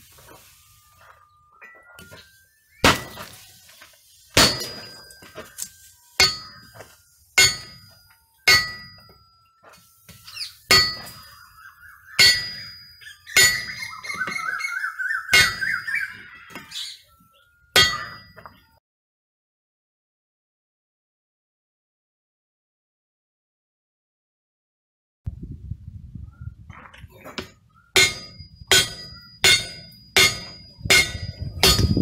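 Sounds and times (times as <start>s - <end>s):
hammer striking hot steel: 2.8s - 3.3s, 4.3s - 9.3s, 10.1s - 11.4s, 12.2s - 14.3s, 15.3s - 15.9s, 17.8s - 18.5s, 27.4s - 32.0s
anvil ringing: 4.4s - 11.5s, 12.2s - 14.4s, 15.3s - 16.8s, 17.7s - 18.6s, 28.0s - 32.0s.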